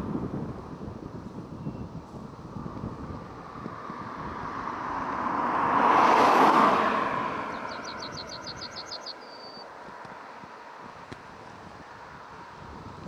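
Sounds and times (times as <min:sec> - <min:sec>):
car passing at speed: 0:02.4 - 0:12.6
high chirps: 0:07.4 - 0:09.7.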